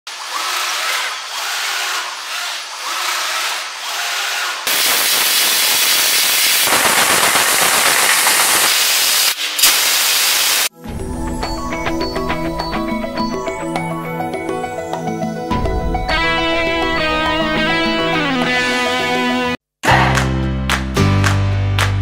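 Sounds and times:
crackling of metal cut: 0:00.1 - 0:10.7
laser cutter gas hiss: 0:04.7 - 0:10.7.

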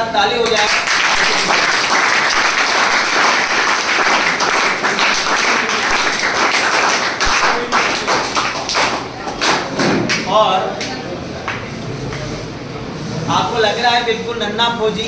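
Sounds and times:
crowd applauding: 0:00.5 - 0:10.3.

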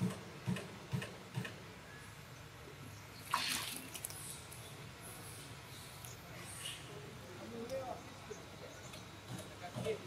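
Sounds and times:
water splashing: 0:03.2 - 0:04.4.

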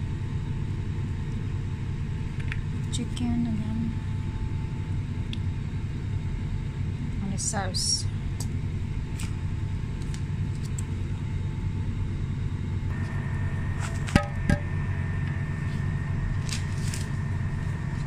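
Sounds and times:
low machine hum: 0:00.0 - 0:18.0
faint high whine: 0:02.9 - 0:18.0.

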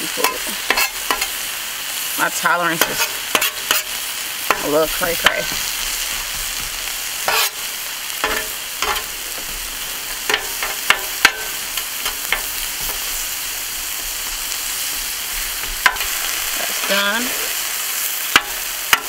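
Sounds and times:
vegetables sizzling on a griddle: 0:00.0 - 0:19.0
metal spatula clacking on steel: 0:00.2 - 0:01.3, 0:08.2 - 0:09.1, 0:10.3 - 0:12.6.

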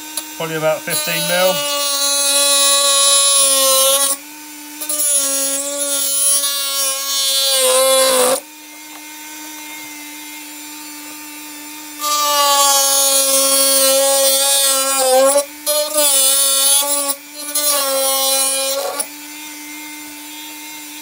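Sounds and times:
rotary tool high whine: 0:00.0 - 0:21.0
cutting disc grinding plastic: 0:00.2 - 0:04.2.

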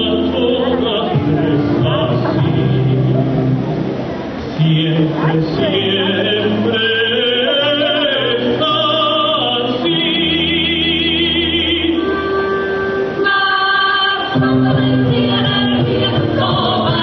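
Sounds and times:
show tune singing with orchestra: 0:00.0 - 0:17.0.

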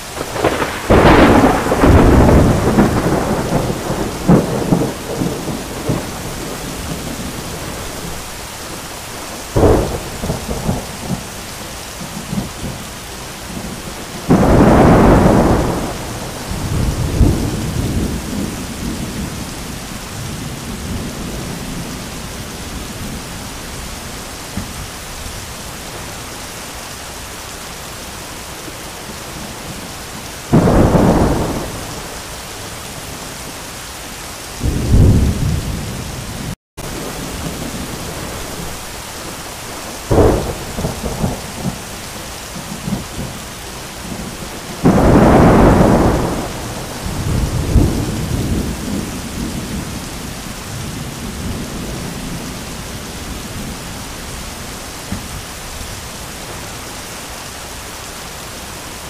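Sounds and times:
heavy rain pouring: 0:00.0 - 0:59.0
thunder cracks and rumbling: 0:00.2 - 0:08.2, 0:09.5 - 0:11.4, 0:13.5 - 0:22.1, 0:30.4 - 0:32.2, 0:34.6 - 0:42.0, 0:44.0 - 0:52.6.

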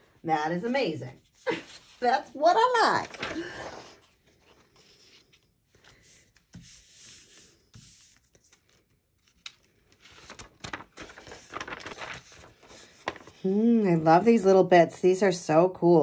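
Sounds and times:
paper rustling and rubbing: 0:01.1 - 0:13.5
paper crackling peeled off stencil: 0:06.8 - 0:13.5.

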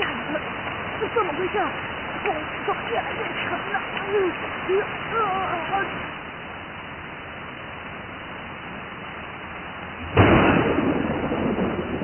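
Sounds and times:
rain hiss: 0:00.0 - 0:12.0
thunderclap rumbling: 0:09.8 - 0:12.0.

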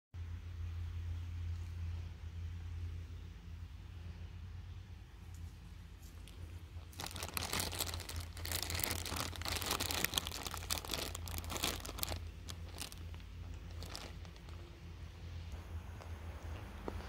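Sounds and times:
plastic bag crinkling: 0:06.2 - 0:14.6.

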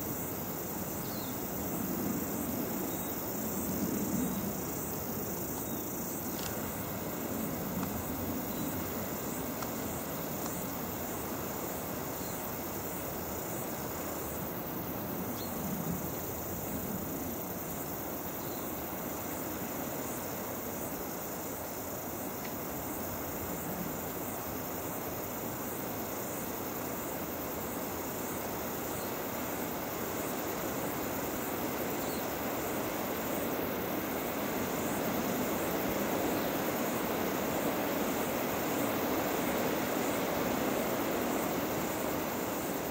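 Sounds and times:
high-pitched insect chirping: 0:00.0 - 0:19.4.

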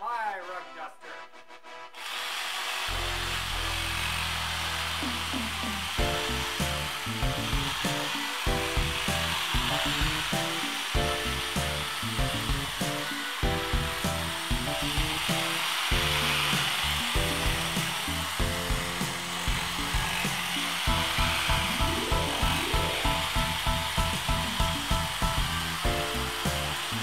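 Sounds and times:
power tool buzzing: 0:02.0 - 0:27.0
background music with beat: 0:06.0 - 0:27.0.

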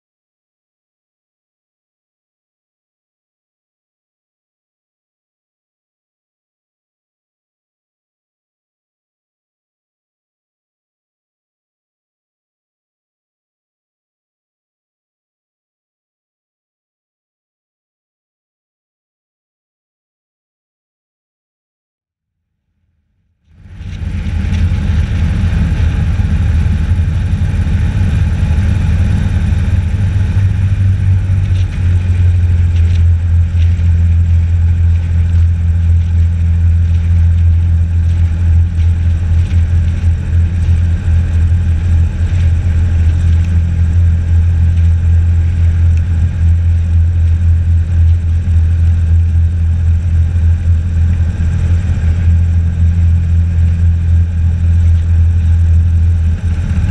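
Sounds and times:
airboat engine and propeller drone: 0:23.5 - 0:56.9.

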